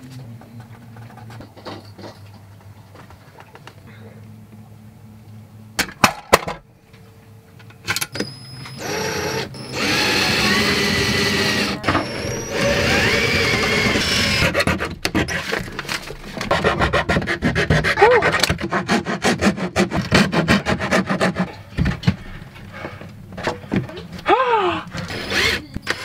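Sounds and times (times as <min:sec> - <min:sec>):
electric drill boring into wood: 0:08.8 - 0:14.6, 0:25.0 - 0:26.0.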